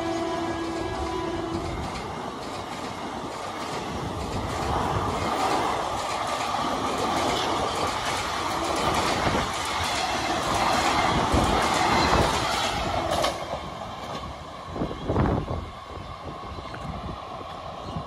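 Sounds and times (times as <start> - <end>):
train coaches rushing past: 0.0 - 18.0
wheels clattering over rail joints: 0.1 - 14.3.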